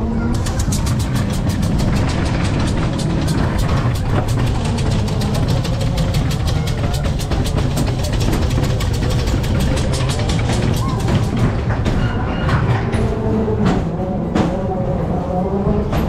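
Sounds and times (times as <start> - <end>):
funfair music with heavy bass: 0.0 - 12.8
ride car rumbling on track: 0.0 - 16.0.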